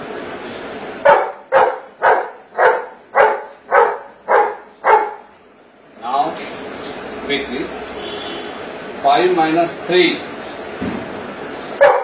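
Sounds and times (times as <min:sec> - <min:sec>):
dog barking: 0:01.0 - 0:05.3, 0:11.8 - 0:12.0.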